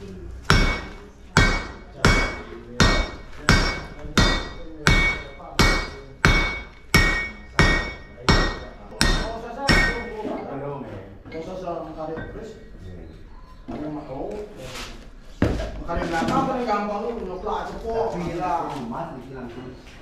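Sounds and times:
hammer striking metal anvil: 0.5 - 10.2.

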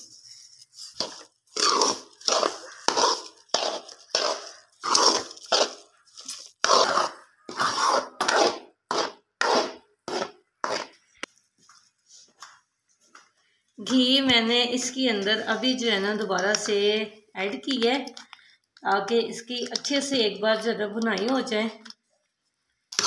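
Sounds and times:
metal spoon scraping metal pan: 0.9 - 11.0.

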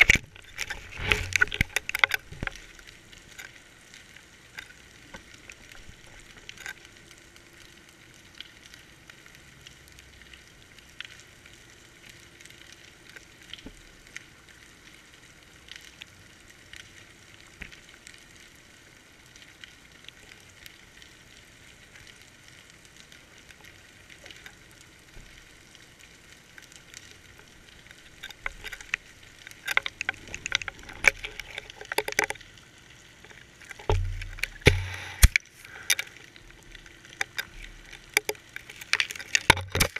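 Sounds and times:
camera rig scraping on rocks: 0.0 - 2.3
small clicks: 0.0 - 7.1, 23.0 - 39.9
underwater crackling hiss: 20.1 - 39.9.

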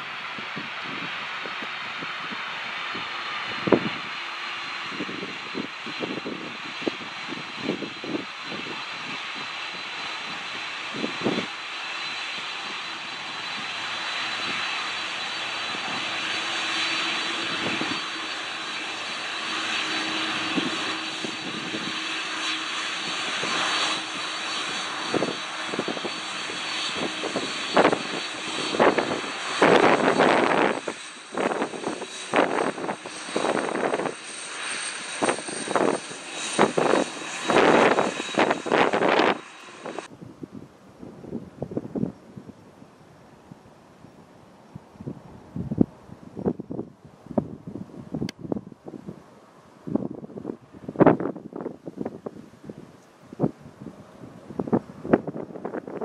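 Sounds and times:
jet engines whining: 0.0 - 40.3, 44.6 - 56.0
jet blast buffeting microphone: 0.0 - 40.4.

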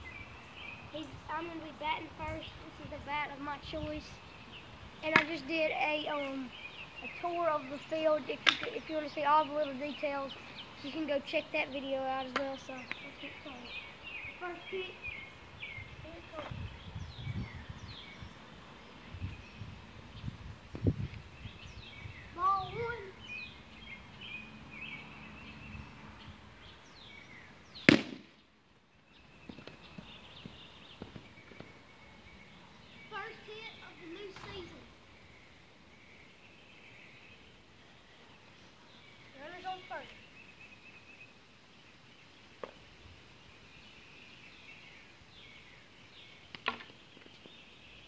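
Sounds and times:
birds chirping: 0.0 - 48.0
plastic ball smack: 5.1 - 5.3, 8.4 - 8.7, 27.9 - 28.4.

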